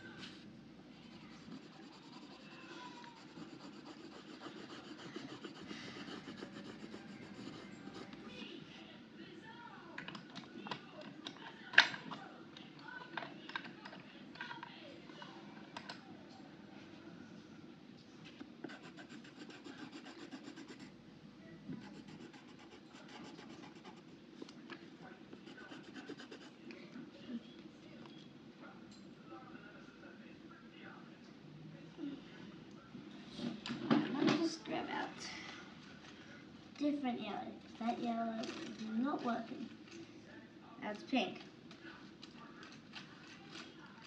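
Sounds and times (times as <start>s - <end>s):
pencil scratching on paper: 1.1s - 8.2s, 18.6s - 20.9s, 21.8s - 24.1s, 25.4s - 26.6s.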